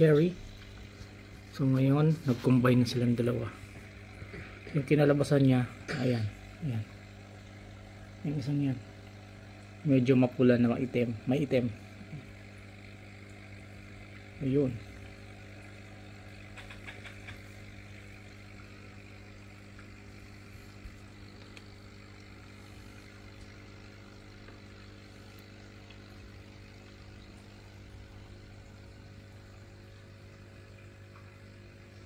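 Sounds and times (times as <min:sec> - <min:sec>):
air pump humming: 0:00.0 - 0:32.0
bubbles fizzing in water: 0:11.7 - 0:32.0.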